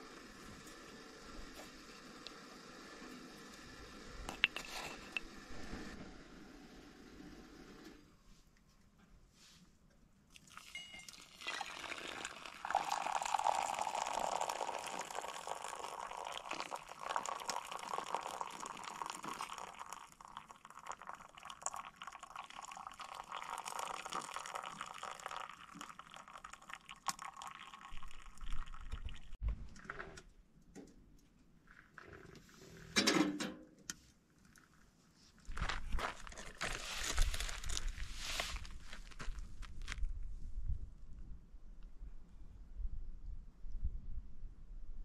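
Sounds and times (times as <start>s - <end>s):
water pouring into coffee filter: 10.3s - 29.3s.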